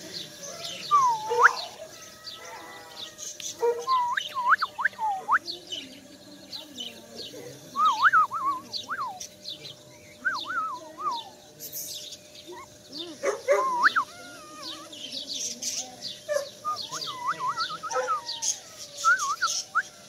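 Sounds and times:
puppies whining: 0:00.4 - 0:05.4, 0:12.4 - 0:20.0.

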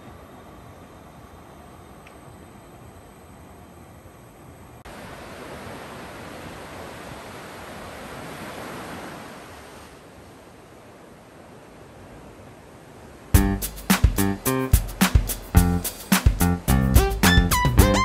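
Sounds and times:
ocean surf breaking on beach: 0:04.8 - 0:16.3.

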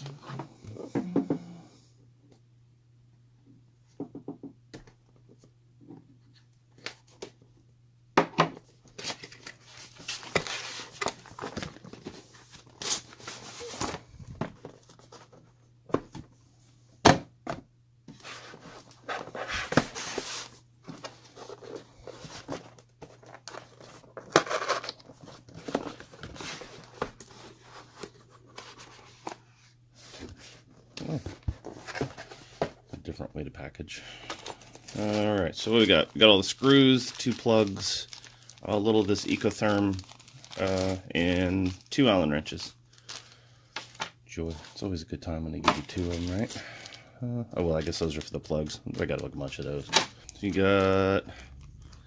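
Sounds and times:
cardboard rustling and tearing: 0:34.8 - 0:41.9.

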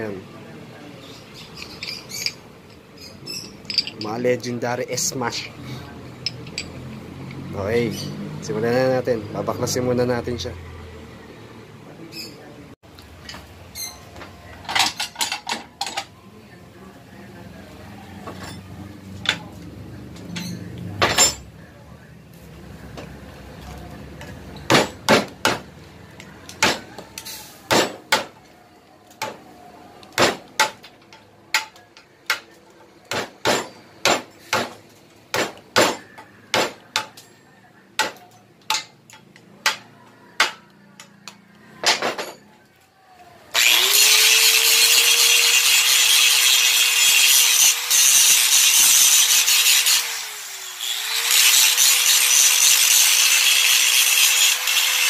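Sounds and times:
hammer striking metal: 0:24.6 - 0:25.6, 0:33.1 - 0:37.3
angle grinder whining: 0:43.5 - 0:55.0.

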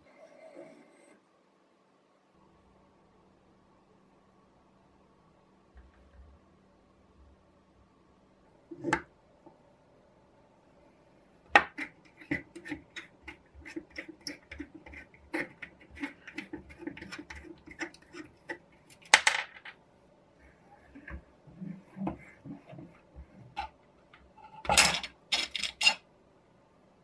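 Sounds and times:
metal nut clicking and scraping: 0:11.6 - 0:19.2, 0:20.9 - 0:26.0.

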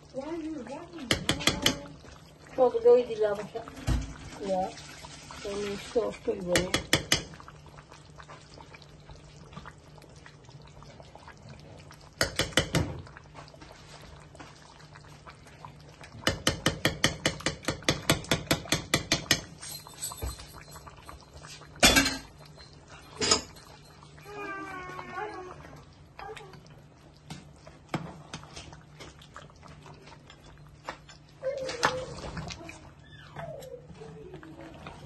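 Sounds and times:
metal knock on pot: 0:01.0 - 0:01.9, 0:06.5 - 0:07.4, 0:12.2 - 0:13.0, 0:16.2 - 0:19.5
metal spoon clinking on pot: 0:16.4 - 0:24.0.

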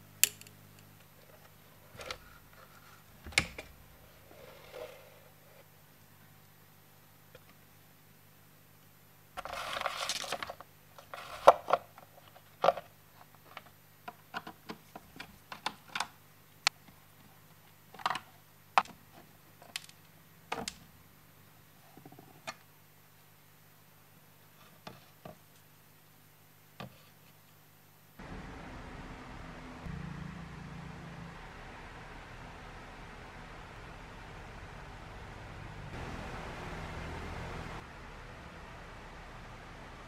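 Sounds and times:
scraping rustle: 0:09.4 - 0:12.5.

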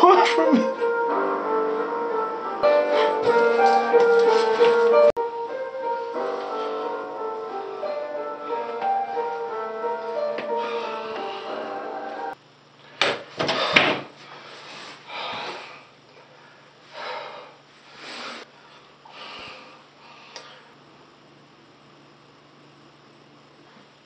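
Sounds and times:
background music: 0:00.0 - 0:12.4
man breathing heavily: 0:00.8 - 0:04.6, 0:06.2 - 0:12.4, 0:13.5 - 0:20.8.

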